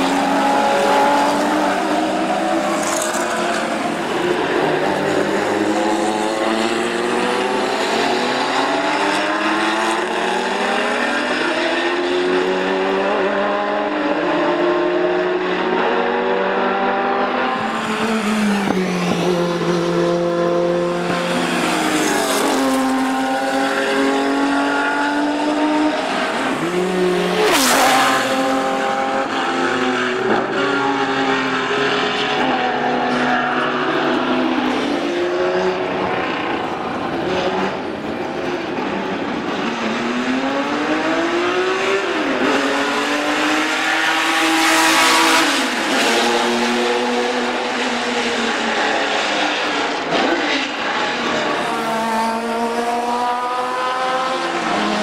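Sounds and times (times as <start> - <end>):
race cars passing by: 0.0 - 55.0.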